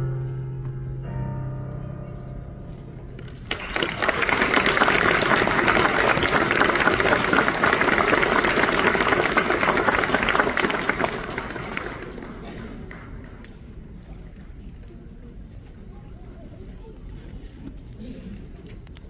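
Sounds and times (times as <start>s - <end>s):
music: 0.0s - 4.1s
audience clapping: 3.2s - 14.4s.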